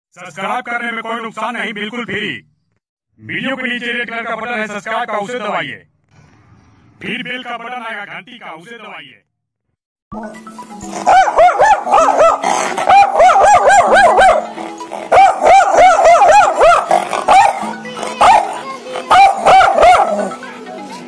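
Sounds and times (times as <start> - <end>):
dog yelping: 10.9 - 20.4.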